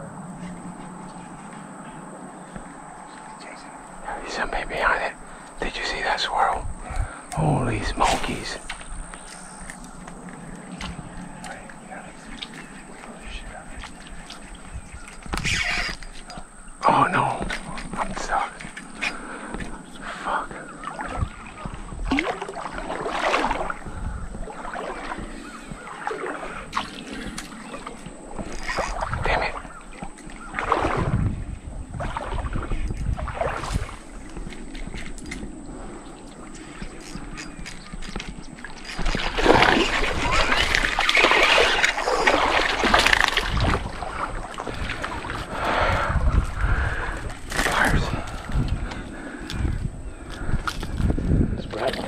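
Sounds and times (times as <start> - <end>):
shallow water sloshing and splashing: 6.8 - 52.0
fish splashing at water surface: 22.0 - 27.9, 39.0 - 45.9.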